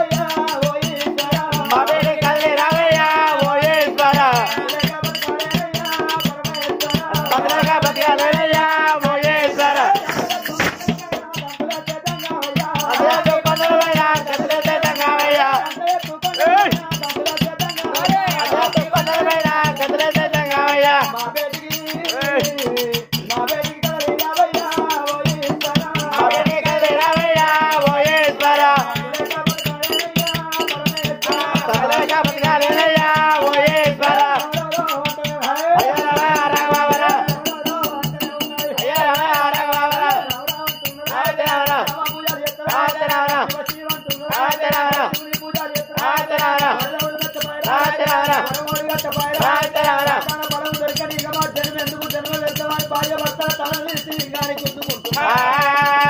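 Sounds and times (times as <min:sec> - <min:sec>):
fast rattling percussion: 0:00.0 - 0:56.0
person singing: 0:00.0 - 0:56.0.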